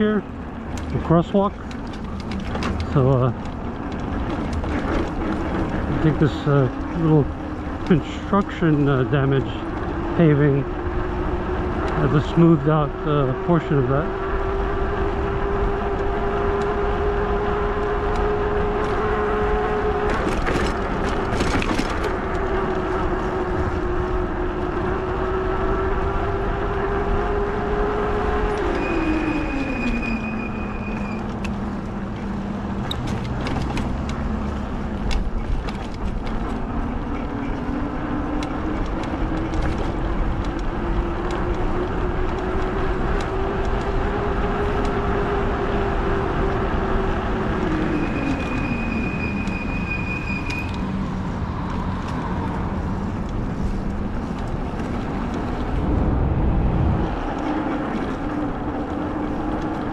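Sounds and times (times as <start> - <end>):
tyre and wind rumble: 0.0 - 59.9
brief high squeal: 28.7 - 31.2, 47.9 - 50.8.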